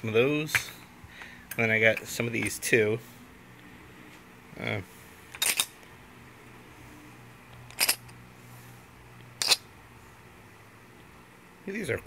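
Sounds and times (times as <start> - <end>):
coins clinking: 5.3 - 5.8, 7.7 - 8.1, 9.4 - 9.6.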